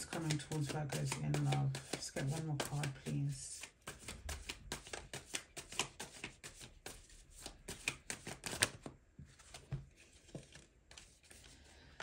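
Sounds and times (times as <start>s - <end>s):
cards being shuffled by hand: 0.0s - 12.0s.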